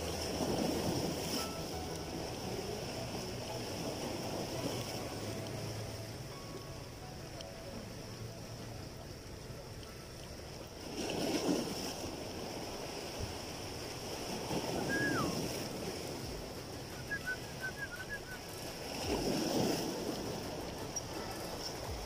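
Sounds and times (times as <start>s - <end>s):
sea water washing against rocks: 0.0s - 6.3s, 7.3s - 22.0s
wind on microphone: 10.8s - 22.0s.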